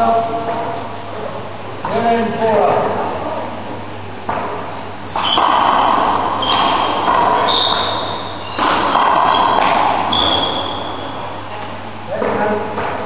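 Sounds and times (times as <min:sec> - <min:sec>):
ball smacks echoing on court: 0:04.2 - 0:11.4, 0:12.2 - 0:13.0.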